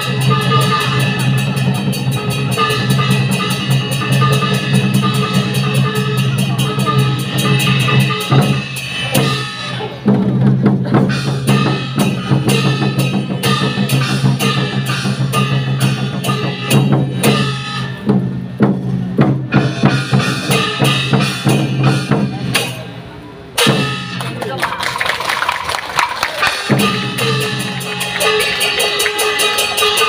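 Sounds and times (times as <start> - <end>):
fast drumming: 23.6 - 30.0.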